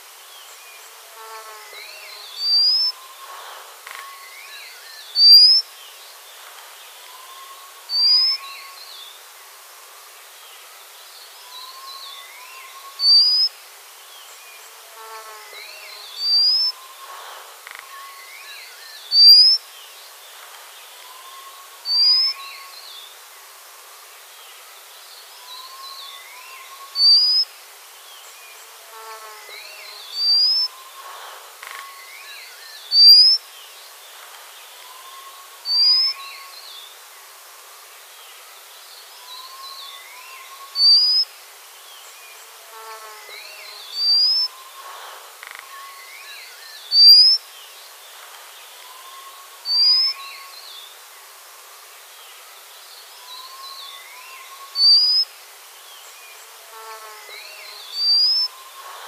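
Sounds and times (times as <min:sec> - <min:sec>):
insect-like buzzing: 0:00.8 - 0:05.6, 0:14.6 - 0:19.6, 0:28.5 - 0:33.4, 0:42.3 - 0:47.4, 0:56.4 - 0:59.0
soft chirps: 0:19.1 - 0:19.6, 0:32.9 - 0:33.4, 0:46.9 - 0:47.4
bird whistled call: 0:32.9 - 0:33.4, 0:40.6 - 0:41.3, 0:46.9 - 0:47.4, 0:49.0 - 0:50.2, 0:54.5 - 0:55.3, 0:58.0 - 0:58.6.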